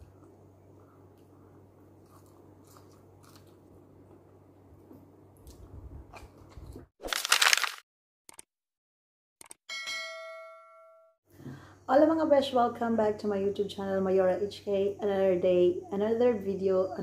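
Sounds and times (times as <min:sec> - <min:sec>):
person chewing: 0:02.0 - 0:03.7
small clicks and crunches: 0:05.4 - 0:08.4.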